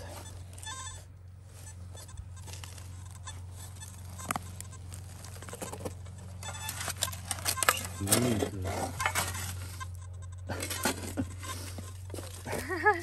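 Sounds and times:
steady low hum: 0:00.0 - 0:13.0
spade digging into soil: 0:06.4 - 0:12.5.

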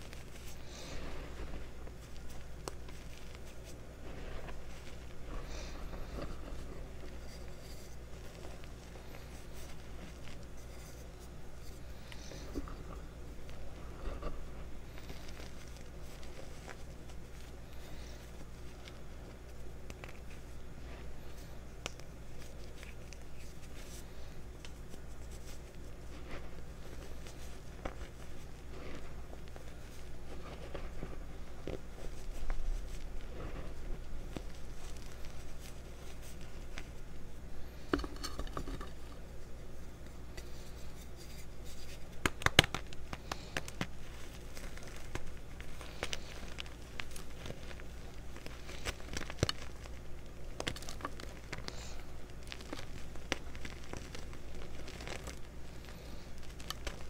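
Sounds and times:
low steady hum: 0:00.0 - 0:57.0
hands crushing chalk: 0:39.9 - 0:57.0
chalk chunks cracking: 0:40.4 - 0:57.0.

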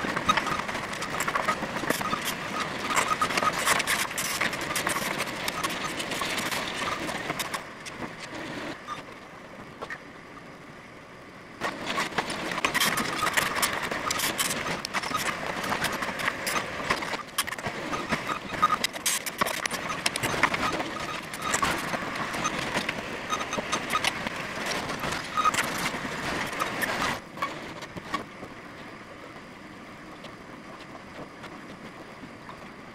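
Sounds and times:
machinery engines running: 0:00.0 - 0:32.9.

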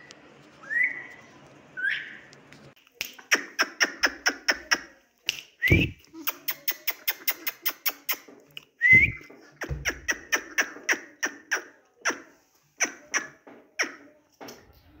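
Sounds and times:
parrot whistled squeak: 0:00.6 - 0:01.2
parrot making sharp clicks: 0:06.2 - 0:08.7.

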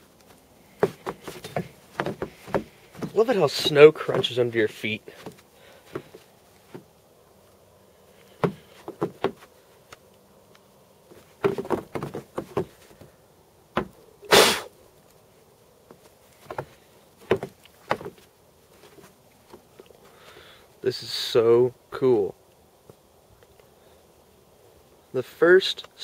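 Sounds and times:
footsteps crunching in snow: 0:00.0 - 0:06.9.

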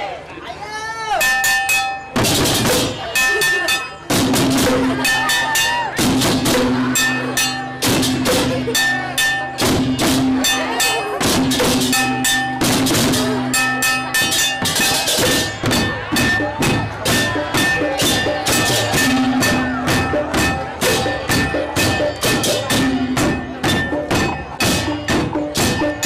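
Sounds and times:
drums: 0:01.1 - 0:26.0
metal percussion: 0:01.1 - 0:26.0
held ringing tones: 0:01.2 - 0:02.2, 0:06.7 - 0:08.0.

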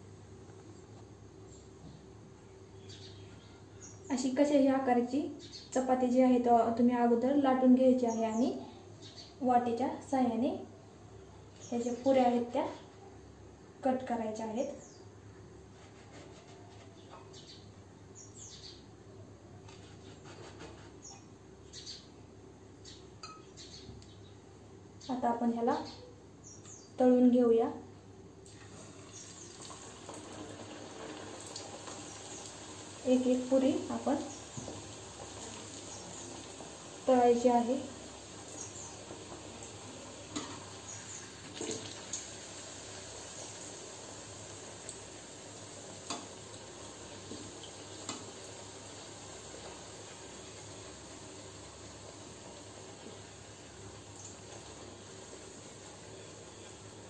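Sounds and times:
hot oil sizzling: 0:28.4 - 0:57.0.

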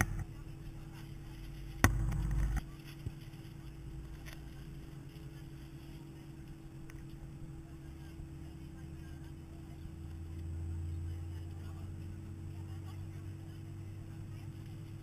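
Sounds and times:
loud low rumble: 0:00.0 - 0:03.0
airliner cabin hum: 0:00.0 - 0:15.0
sharp thump: 0:01.8 - 0:02.6.

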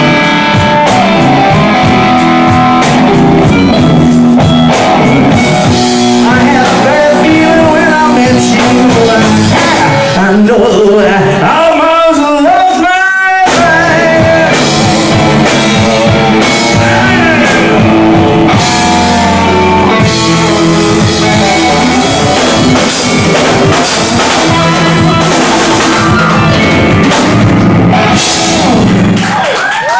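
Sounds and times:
drum kit: 0:00.0 - 0:11.4, 0:12.6 - 0:29.9
electric guitars: 0:00.0 - 0:11.8, 0:12.6 - 0:29.9
bass guitar: 0:00.0 - 0:29.9
keyboard: 0:13.0 - 0:29.2.

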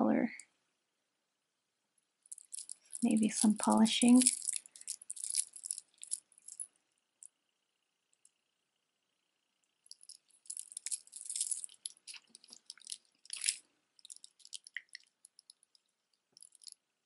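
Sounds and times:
necklaces rattling and clicking: 0:02.3 - 0:06.7, 0:09.9 - 0:15.8, 0:16.4 - 0:16.8.

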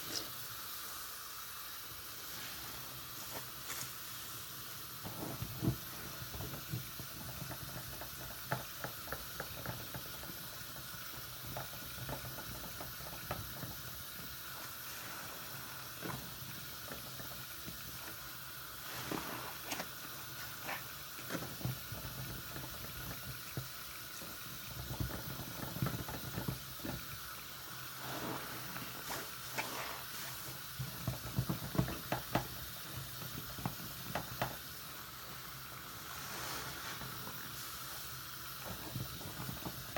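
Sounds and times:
sponge squishing lather: 0:02.1 - 0:39.9
tap water running into sink: 0:02.8 - 0:39.9.

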